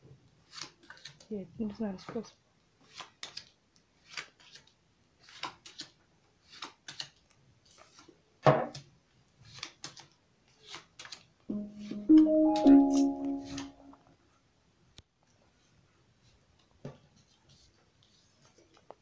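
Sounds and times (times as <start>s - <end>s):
piano music: 11.5s - 14.0s.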